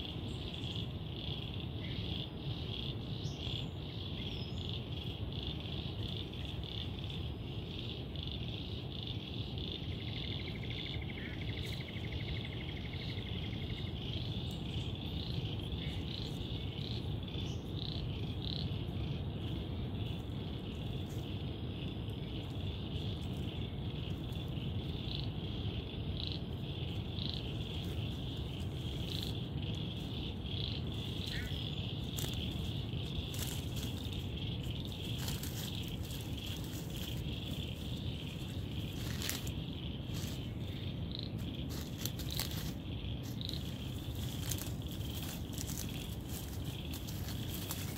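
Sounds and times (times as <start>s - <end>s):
insects chirring: 0.0s - 47.9s
crackles in leaf litter: 26.6s - 47.9s.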